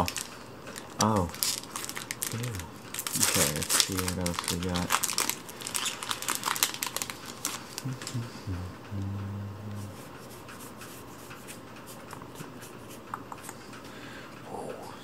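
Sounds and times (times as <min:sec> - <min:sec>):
foil wrapper crinkling: 0:00.0 - 0:07.9
low hummed tones: 0:00.0 - 0:11.4.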